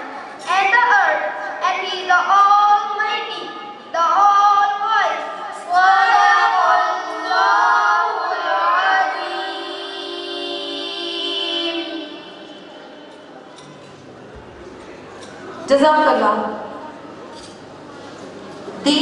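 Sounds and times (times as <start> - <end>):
boy chanting: 0.4 - 13.3.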